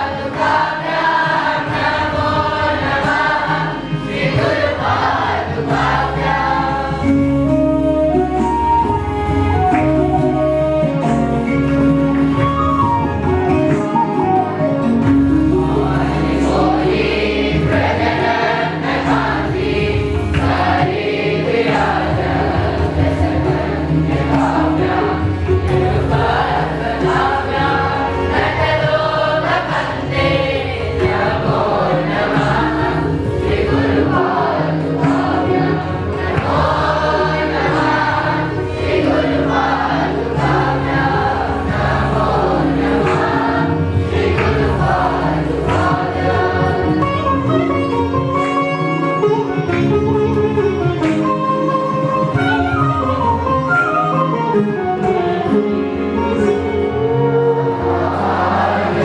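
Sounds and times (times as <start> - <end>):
boys singing in unison: 0.0 - 7.2, 15.6 - 47.2, 57.8 - 59.0.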